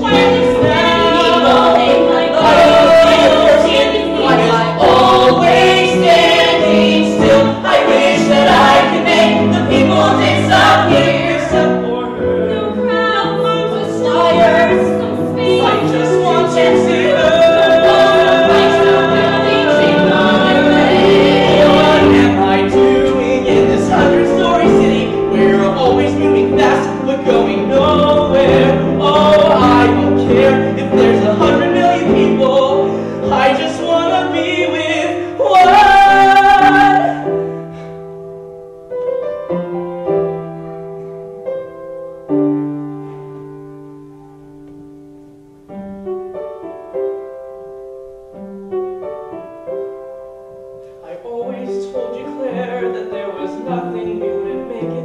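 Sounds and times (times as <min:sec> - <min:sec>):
voices singing: 0:00.0 - 0:37.4
piano accompaniment: 0:00.0 - 0:55.0.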